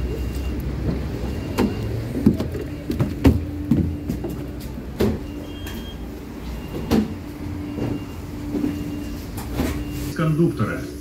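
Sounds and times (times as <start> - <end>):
footsteps on metal steps: 0.6 - 5.9.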